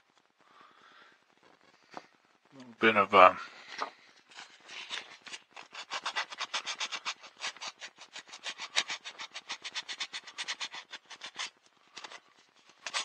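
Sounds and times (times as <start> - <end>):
sandpaper rubbing on wood: 4.4 - 13.0.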